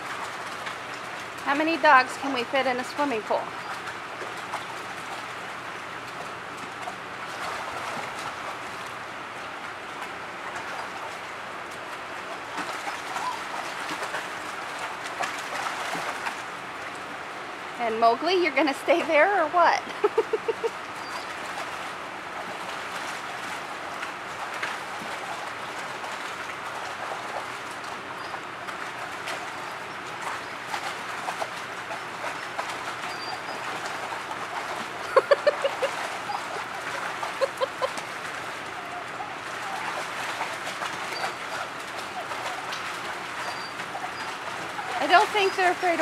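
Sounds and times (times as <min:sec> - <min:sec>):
water pattering and splashing: 0:00.0 - 0:46.0.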